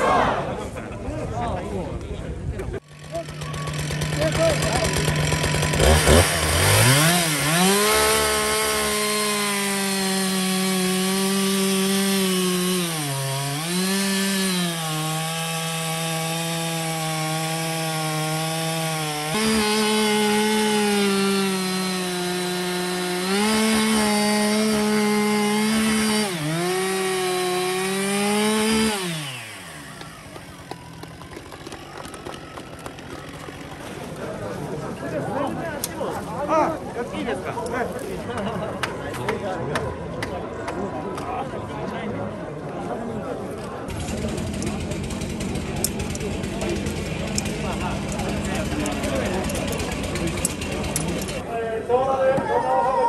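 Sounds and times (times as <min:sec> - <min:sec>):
chainsaw cutting log: 0:02.8 - 0:34.2, 0:43.9 - 0:51.5.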